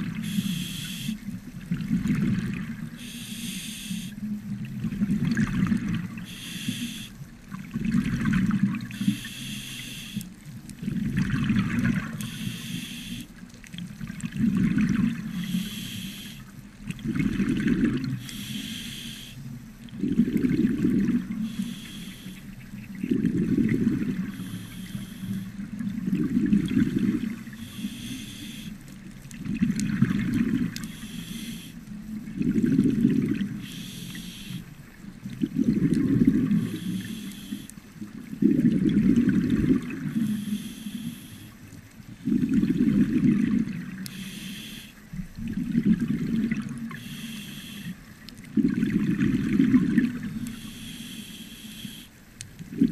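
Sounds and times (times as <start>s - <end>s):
exhaled bubbles burbling: 0.0s - 3.1s, 4.3s - 6.4s, 7.5s - 9.0s, 10.7s - 12.3s, 13.8s - 15.5s, 16.8s - 18.2s, 19.9s - 21.6s, 22.6s - 24.5s, 25.4s - 27.9s, 29.2s - 31.0s, 32.0s - 33.7s, 35.0s - 37.1s, 38.0s - 40.3s, 42.1s - 44.1s, 45.1s - 47.0s, 48.4s - 50.7s, 52.6s - 52.9s
regulator inhale hiss: 0.2s - 1.2s, 2.9s - 4.2s, 6.2s - 7.2s, 8.9s - 10.3s, 12.1s - 13.3s, 15.2s - 16.6s, 18.2s - 19.5s, 21.3s - 22.6s, 24.2s - 25.6s, 27.5s - 28.9s, 30.8s - 31.9s, 33.5s - 34.7s, 36.4s - 37.8s, 40.0s - 41.7s, 44.0s - 45.0s, 46.9s - 48.2s, 50.4s - 52.2s.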